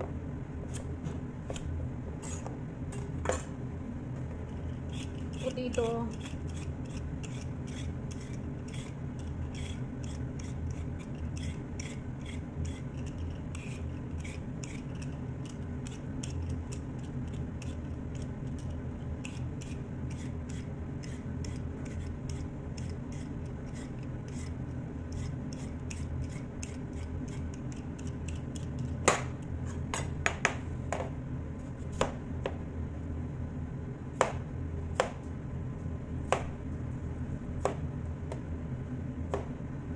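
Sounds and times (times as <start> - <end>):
steady low hum: 0.0 - 39.9
peeler scraping potato skin: 4.4 - 29.1
knife chopping on cutting board: 26.6 - 31.1, 31.9 - 32.6, 34.2 - 34.4, 35.0 - 35.2, 36.3 - 36.6, 39.3 - 39.6.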